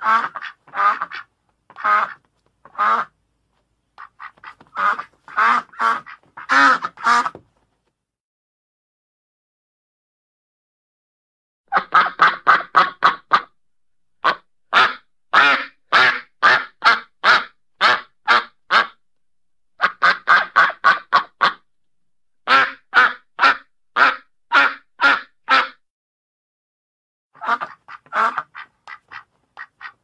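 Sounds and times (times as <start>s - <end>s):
duck quacking: 0.0s - 3.2s, 4.0s - 7.4s, 11.7s - 13.5s, 14.2s - 19.0s, 19.8s - 21.6s, 22.4s - 25.8s, 27.4s - 30.0s.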